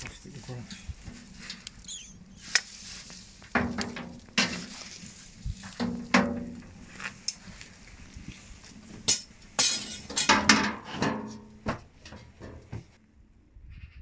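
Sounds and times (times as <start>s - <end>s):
metal tongs clanking on bin: 9.1s - 11.5s.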